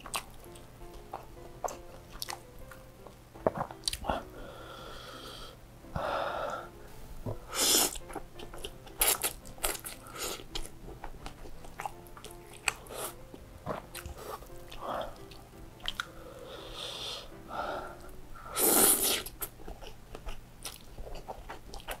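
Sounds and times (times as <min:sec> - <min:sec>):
wet chewing and lip-smacking: 0:00.0 - 0:04.2, 0:07.8 - 0:16.1, 0:18.9 - 0:22.0
breathy exhale: 0:04.1 - 0:06.8, 0:16.1 - 0:19.3
noodle slurping: 0:07.5 - 0:08.1, 0:18.5 - 0:19.9.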